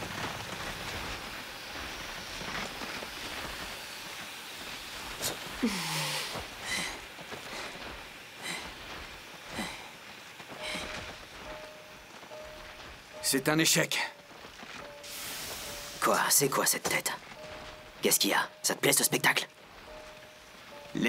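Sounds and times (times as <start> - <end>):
steam hissing: 0.0 - 21.0
heavy ragged breathing: 5.6 - 11.1.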